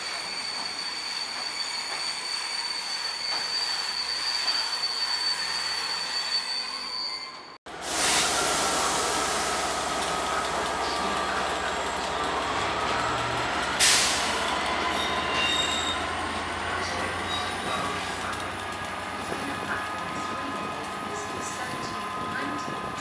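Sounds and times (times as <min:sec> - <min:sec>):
wheels squealing on track: 0:00.0 - 0:07.6, 0:09.6 - 0:23.0
diesel locomotive engine running: 0:07.7 - 0:23.0
air hiss: 0:07.8 - 0:10.3.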